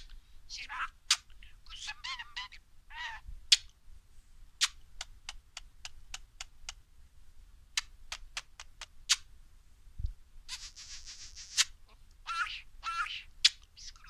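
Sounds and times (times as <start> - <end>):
sharp high beak clicks: 1.1 - 1.4, 3.5 - 3.7, 4.6 - 6.8, 7.8 - 9.3, 10.5 - 11.8, 13.4 - 14.0.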